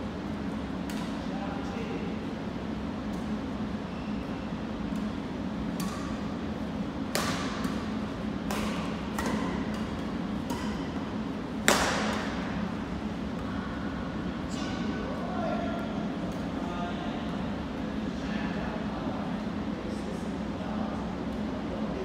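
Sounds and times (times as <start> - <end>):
steady low hum: 0.0 - 22.0
rackets hitting shuttlecock: 0.8 - 1.2, 4.9 - 12.7.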